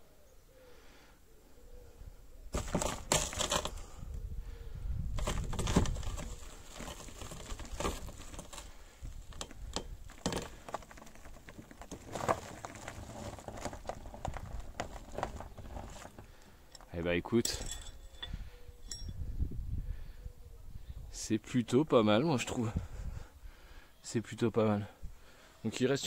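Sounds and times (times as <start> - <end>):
gravel crunching: 2.5 - 4.0, 5.1 - 18.3.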